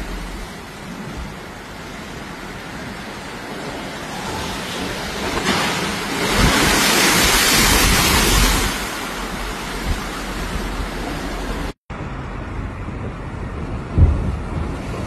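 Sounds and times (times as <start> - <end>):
water rushing over pavement: 0.0 - 11.8
waves crashing against seawall: 0.0 - 11.8, 12.4 - 15.0.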